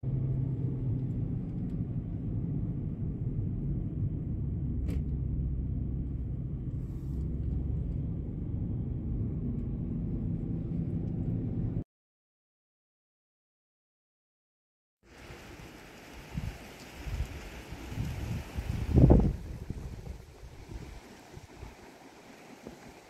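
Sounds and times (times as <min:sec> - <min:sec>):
car engine and tyre noise: 0:00.0 - 0:11.8.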